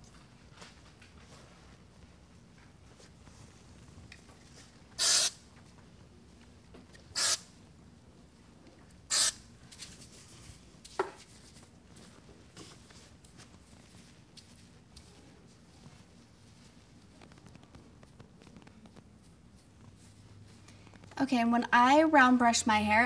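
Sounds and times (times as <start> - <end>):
spray bottle spritzing: 5.0 - 5.4, 7.2 - 7.4, 9.1 - 9.4.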